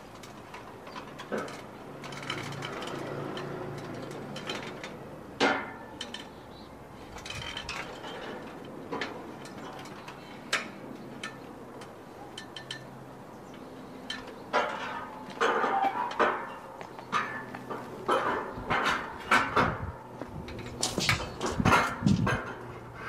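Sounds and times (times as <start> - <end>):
metal frame parts knocking: 0.2 - 6.4, 7.1 - 22.7.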